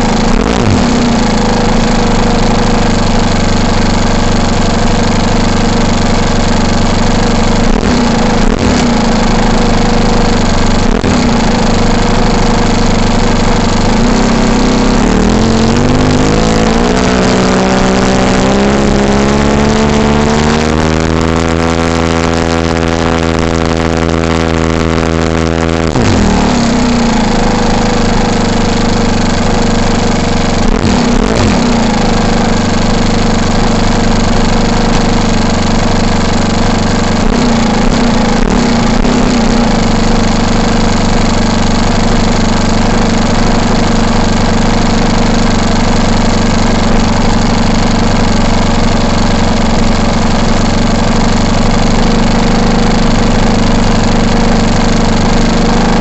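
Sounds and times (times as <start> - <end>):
model plane engine running: 0.0 - 56.0.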